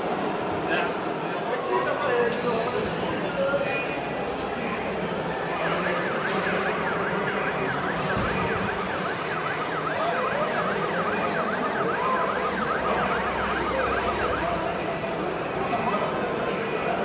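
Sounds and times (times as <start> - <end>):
electronic siren sweeping: 5.5 - 14.8.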